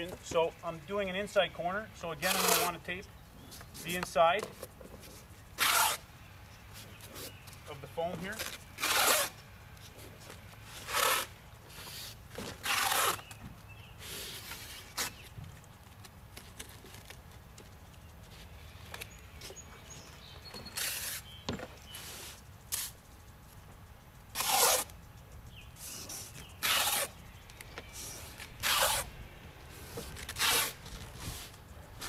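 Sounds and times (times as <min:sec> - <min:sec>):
tape ripping off roll: 0:02.2 - 0:02.8, 0:05.6 - 0:06.1, 0:08.3 - 0:09.4, 0:10.6 - 0:13.4, 0:14.1 - 0:17.3, 0:20.6 - 0:21.3, 0:21.9 - 0:23.0, 0:24.3 - 0:25.0, 0:25.9 - 0:27.2, 0:28.0 - 0:29.1, 0:29.8 - 0:32.0.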